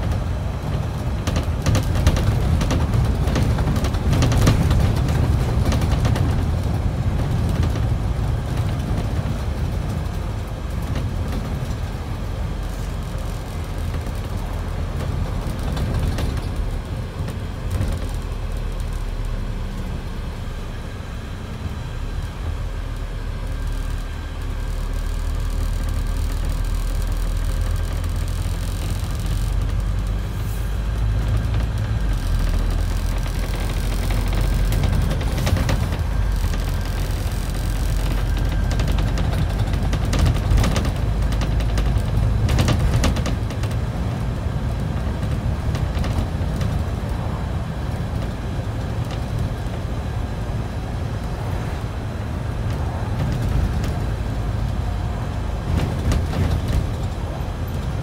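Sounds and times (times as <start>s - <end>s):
bus engine drone: 0.0s - 58.0s
road and tyre noise: 0.0s - 58.0s.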